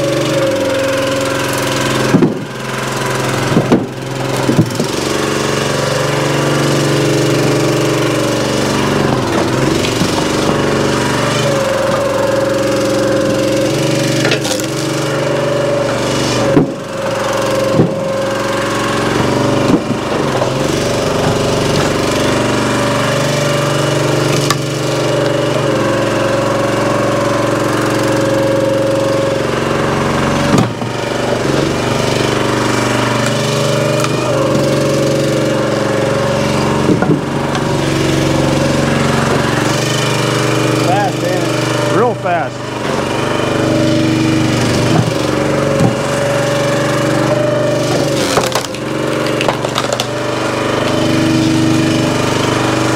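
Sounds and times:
log splitter engine running: 0:00.0 - 0:52.9
wood cracking and knocking: 0:01.9 - 0:05.7, 0:08.8 - 0:12.1, 0:14.0 - 0:25.5, 0:30.2 - 0:35.5, 0:36.6 - 0:38.2, 0:42.8 - 0:51.8.

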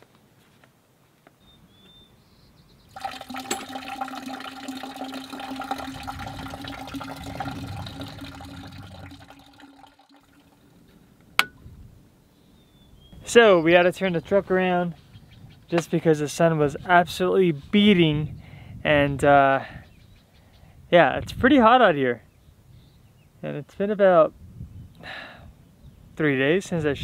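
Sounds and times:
water running and splashing: 0:02.9 - 0:10.8.

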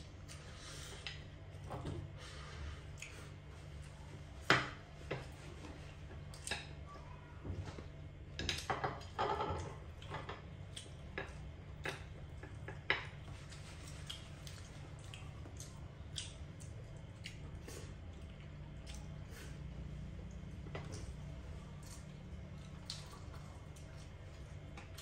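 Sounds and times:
chopsticks tapping on plates: 0:08.3 - 0:13.6.

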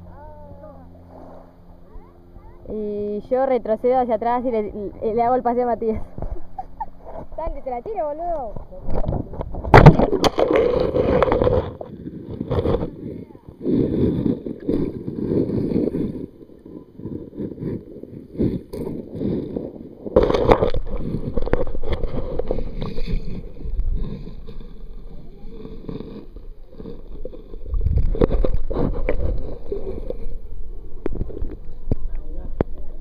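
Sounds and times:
muffled underwater sloshing: 0:00.0 - 0:33.0.

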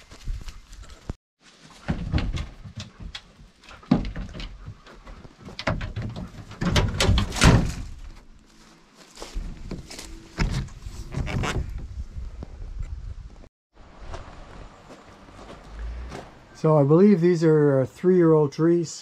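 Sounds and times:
knocks and thuds: 0:01.8 - 0:08.0.

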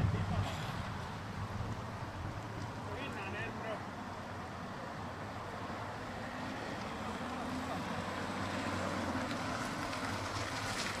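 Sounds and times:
wind noise on microphone: 0:00.0 - 0:02.8
car engine and tyres humming: 0:00.0 - 0:11.0.

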